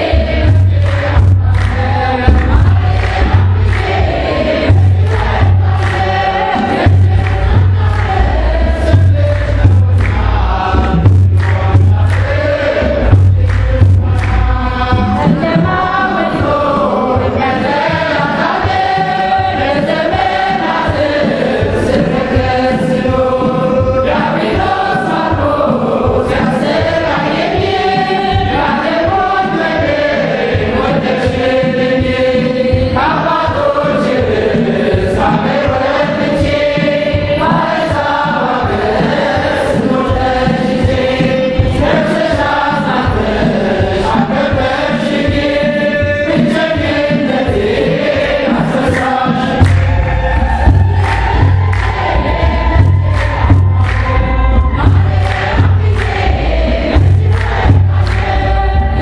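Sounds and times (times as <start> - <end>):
choir singing a hymn: 0.0 - 59.0
hand claps: 0.3 - 15.4, 48.5 - 58.4.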